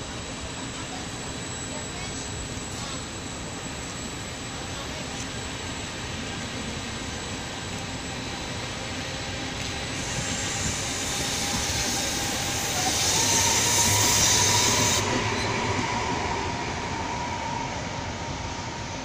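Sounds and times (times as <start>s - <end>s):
electric train whine: 0.0s - 19.0s
high hiss: 9.6s - 15.8s.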